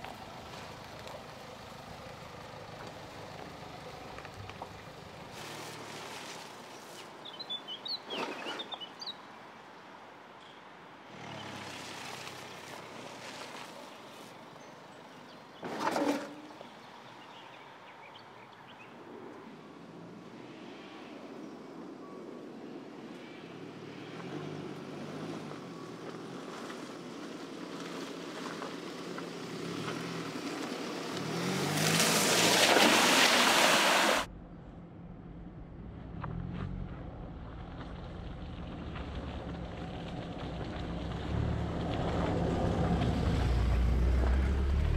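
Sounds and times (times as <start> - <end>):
car engine approaching: 0.0 - 6.4, 23.5 - 44.9
tyres crunching on dirt track: 0.0 - 8.9, 11.1 - 16.8, 24.0 - 34.3, 36.2 - 44.9
birds chirping: 6.8 - 9.3
car engine at low revs: 34.7 - 44.9.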